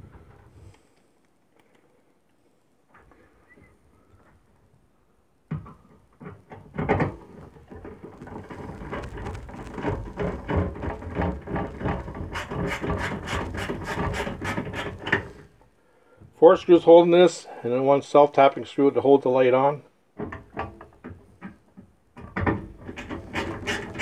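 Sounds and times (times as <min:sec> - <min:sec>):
metal scraping and rubbing: 0:07.1 - 0:15.5, 0:22.8 - 0:24.0.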